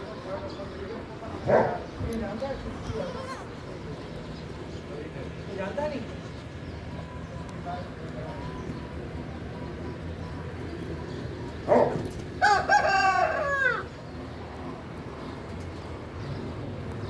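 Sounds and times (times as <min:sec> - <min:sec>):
rooster crowing: 0:12.4 - 0:13.9.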